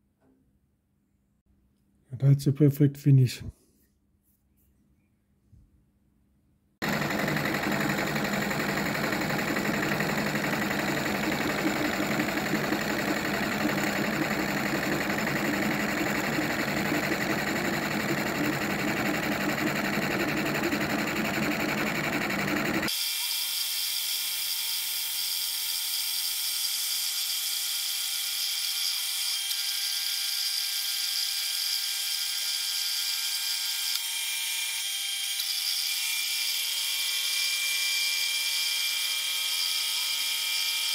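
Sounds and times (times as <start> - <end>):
grinding disc grinding metal: 6.8 - 22.9.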